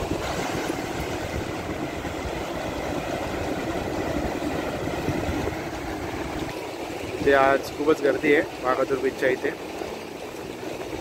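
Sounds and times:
wind buffeting microphone: 0.0 - 7.7
sea surf washing up beach: 0.0 - 11.0.

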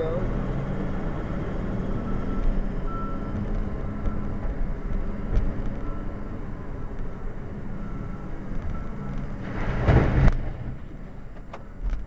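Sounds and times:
diesel truck engine rumbling: 0.0 - 12.0
faint reversing beeper: 1.6 - 4.4, 5.8 - 7.0, 7.6 - 9.4.

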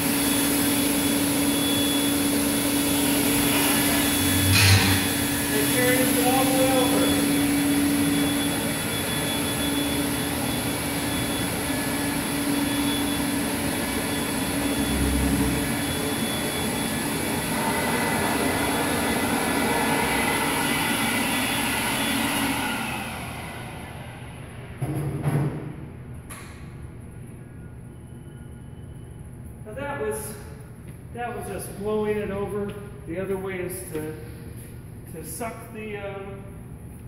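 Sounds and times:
electric blower motor running: 0.0 - 24.8.

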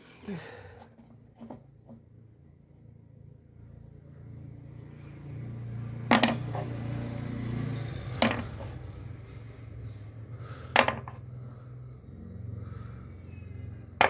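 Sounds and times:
steady low hum: 0.0 - 14.0
wood pieces knocking on a bench: 6.1 - 6.5, 8.2 - 8.6, 10.7 - 11.2.

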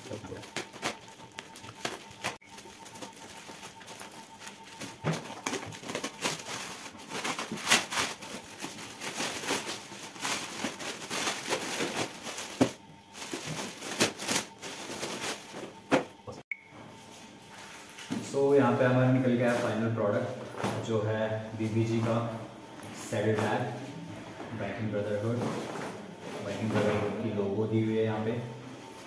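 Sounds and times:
plastic wrap crinkling and tearing: 0.0 - 15.8
utility knife cutting plastic wrap: 5.1 - 12.7.

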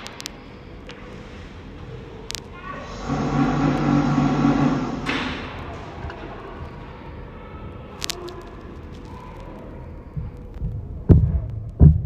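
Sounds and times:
low pitched hum: 0.0 - 7.9.

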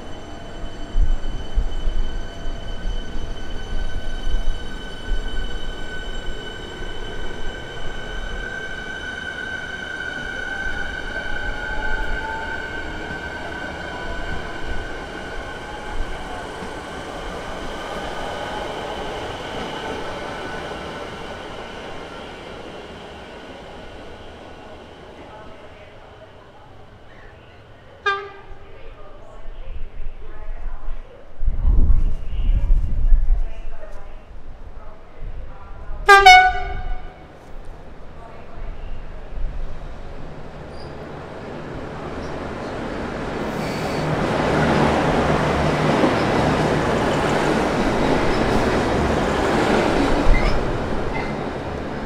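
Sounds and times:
high squeal of train: 0.0 - 34.9, 35.5 - 52.0
train wheels rumbling: 39.2 - 52.0.

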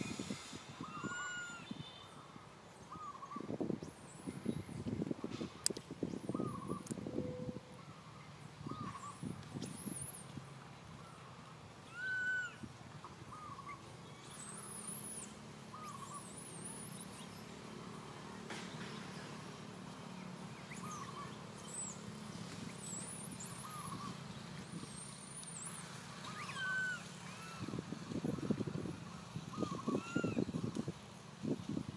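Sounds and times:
small birds chirping: 7.9 - 31.6
monkey squeaking and whimpering: 26.2 - 27.7.

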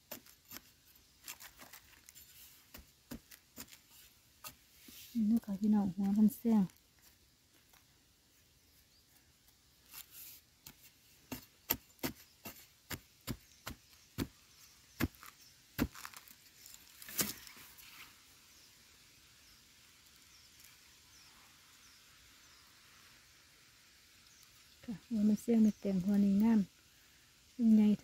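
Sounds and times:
digging tool chopping soil: 0.0 - 4.6, 10.7 - 16.3.

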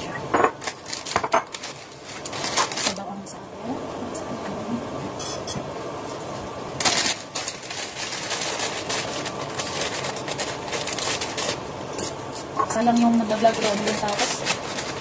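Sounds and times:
plastic packaging crinkling: 0.6 - 3.0, 6.7 - 12.2, 12.9 - 15.0.

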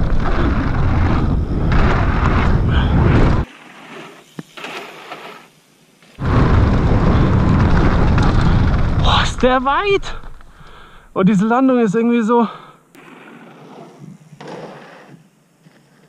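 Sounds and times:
wind rumbling on microphone: 0.0 - 3.5, 6.2 - 11.2
bike tires rolling: 0.0 - 11.2, 12.9 - 16.0.

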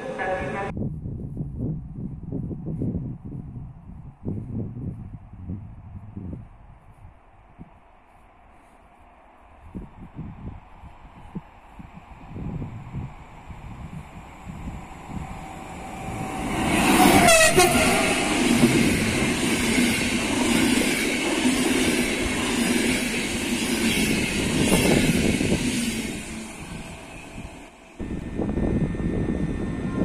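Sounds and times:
train wheels rumbling on rails: 9.5 - 30.0
train horn: 16.7 - 18.7.

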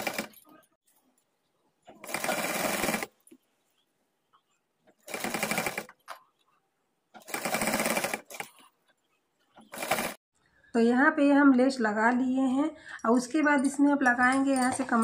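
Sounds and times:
sewing machine running: 0.0 - 0.4, 2.0 - 3.1, 5.0 - 5.9, 7.2 - 8.6, 9.7 - 10.2.

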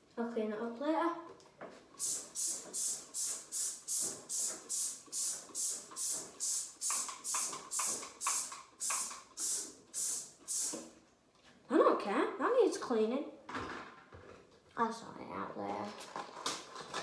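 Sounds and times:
spray bottle squirting: 2.0 - 11.0.

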